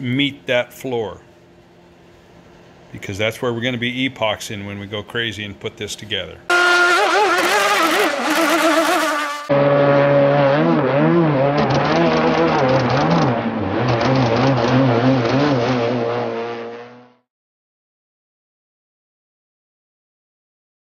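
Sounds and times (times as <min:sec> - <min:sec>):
model boat engine buzzing: 0:06.5 - 0:17.1.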